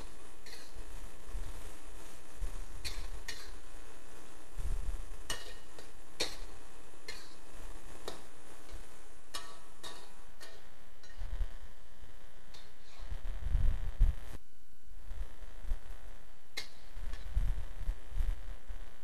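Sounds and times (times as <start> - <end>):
metal ladle scraping a wok: 0.0 - 0.9, 8.0 - 11.3, 12.5 - 13.1.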